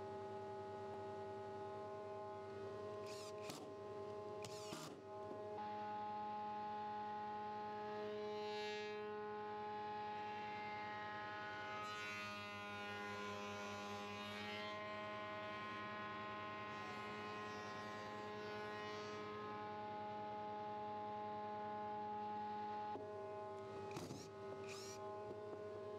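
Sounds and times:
cutter cutting wood: 0:04.4 - 0:04.9, 0:23.8 - 0:25.0.

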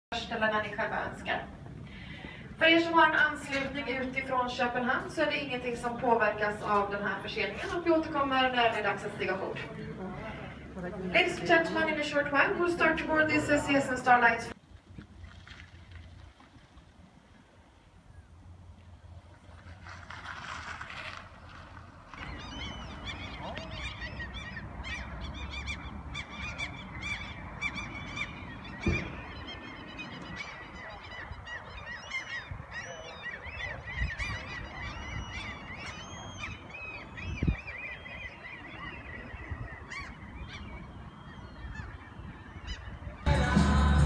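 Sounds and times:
low background noise: 0:00.1 - 0:44.0
flock of birds calling: 0:22.1 - 0:44.0.

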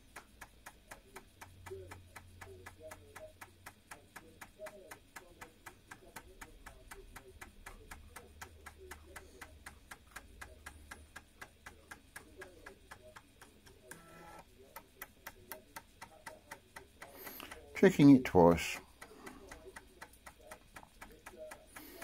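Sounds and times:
faint motor hum: 0:00.0 - 0:22.0
floppy drive stepper clicking: 0:07.0 - 0:22.0.

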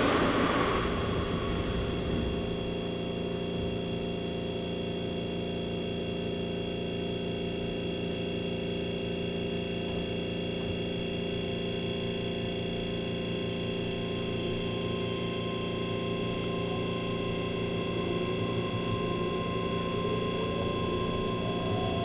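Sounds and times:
train running noise: 0:00.0 - 0:04.6, 0:13.3 - 0:22.0
train electrical equipment hum: 0:00.0 - 0:22.0.

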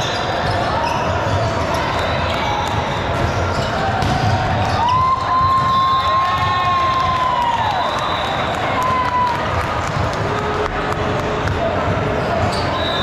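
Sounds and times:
sneakers squeaking on floor: 0:00.0 - 0:06.2, 0:11.5 - 0:13.0.

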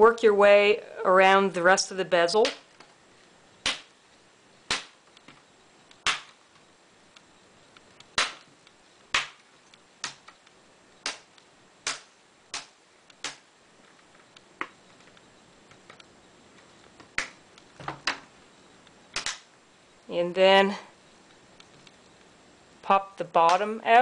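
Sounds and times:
plastic clips popping loose: 0:19.2 - 0:19.5.

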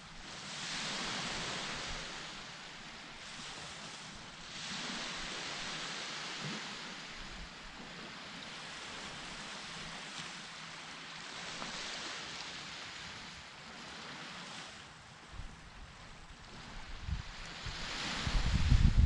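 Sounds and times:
ocean surf washing onto beach: 0:00.0 - 0:19.0
wind gusts on microphone: 0:11.4 - 0:19.0.

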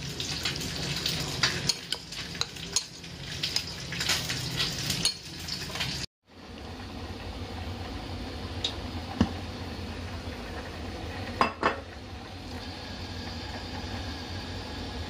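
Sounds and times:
cookware knocking and clinking: 0:11.4 - 0:11.8.

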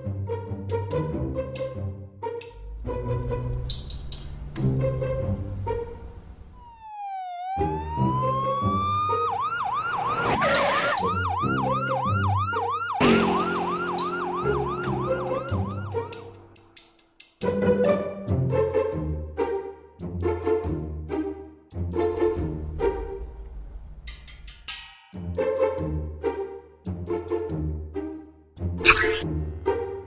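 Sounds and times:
orchestral background music: 0:00.0 - 0:06.6, 0:11.0 - 0:30.0
ambulance siren wailing and yelping: 0:06.5 - 0:16.3.

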